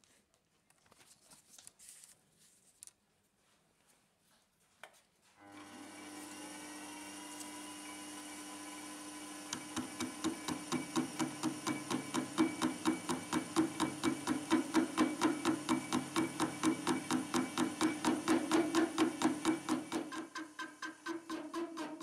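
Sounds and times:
lathe motor humming: 5.4s - 22.0s
cutting tool knocking with chatter: 9.5s - 22.0s.

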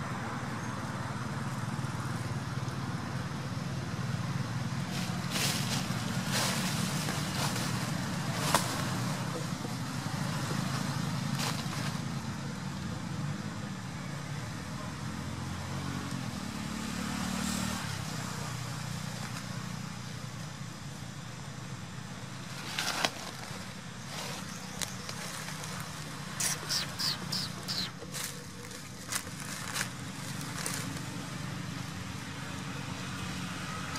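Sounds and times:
low engine hum: 0.0s - 33.9s
dry leaves crackling: 4.6s - 12.5s, 22.3s - 33.9s.

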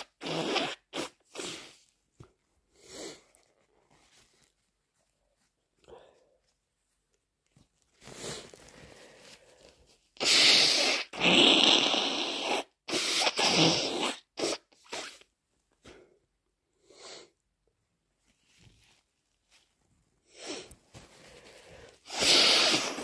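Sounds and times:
person blowing nose: 0.0s - 2.0s, 2.7s - 3.5s, 8.0s - 9.4s, 10.2s - 15.3s, 20.3s - 23.0s.

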